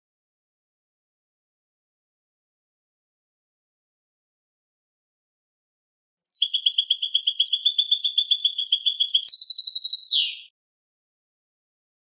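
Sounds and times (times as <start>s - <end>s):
goldfinch singing: 6.2s - 10.5s.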